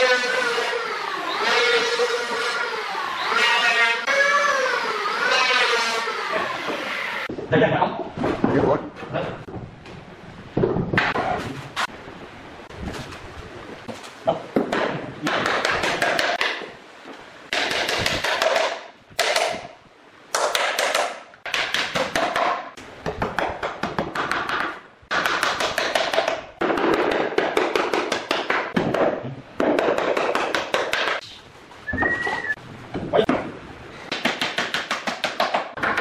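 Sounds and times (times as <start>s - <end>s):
hammer tapping on wooden boards: 17.5s - 19.6s, 20.3s - 31.2s, 34.1s - 36.0s.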